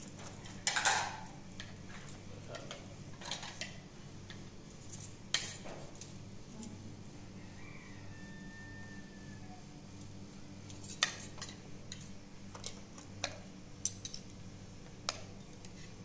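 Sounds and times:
metal utensils clinking on cookware: 0:00.2 - 0:01.3.

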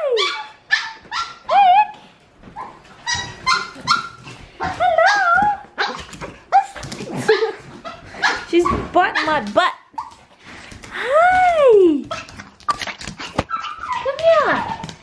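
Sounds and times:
small dog whining and yipping: 0:13.5 - 0:14.8.

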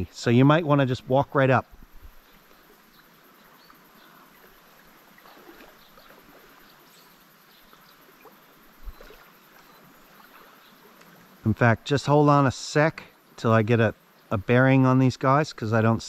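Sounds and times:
river water trickling: 0:00.0 - 0:16.0
small ticks: 0:07.6 - 0:11.3.

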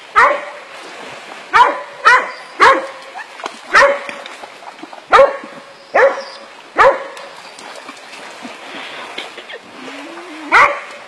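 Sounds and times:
faint water splashing: 0:00.0 - 0:11.0
dogs barking: 0:00.2 - 0:00.6, 0:01.5 - 0:03.0, 0:03.7 - 0:04.2, 0:05.1 - 0:07.2, 0:10.5 - 0:11.0.

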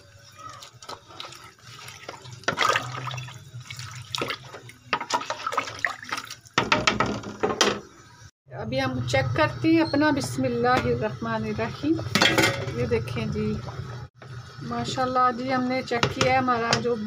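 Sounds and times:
water sloshing in a pot: 0:00.0 - 0:08.1.

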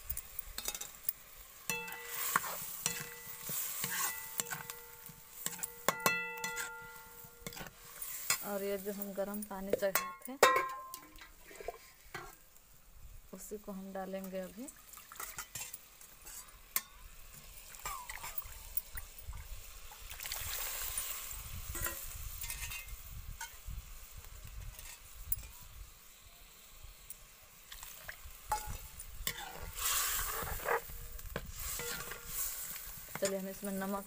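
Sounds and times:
food sizzling in a pan: 0:00.0 - 0:34.0
metal ladle clinking on pan: 0:05.5 - 0:07.7, 0:09.9 - 0:11.1, 0:31.8 - 0:32.3
water poured into hot pan: 0:14.6 - 0:25.8, 0:27.6 - 0:30.6.

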